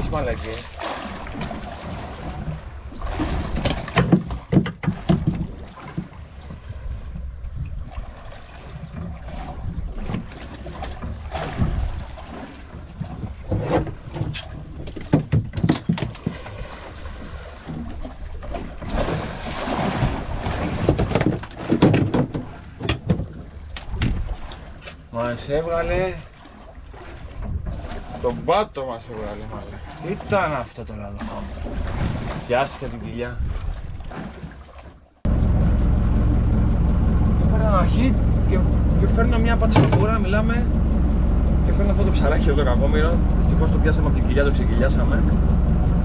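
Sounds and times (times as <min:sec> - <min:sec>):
water lapping against hull: 0:00.0 - 0:46.0
gear clattering on deck: 0:03.2 - 0:06.7
wind buffeting microphone: 0:05.0 - 0:12.2.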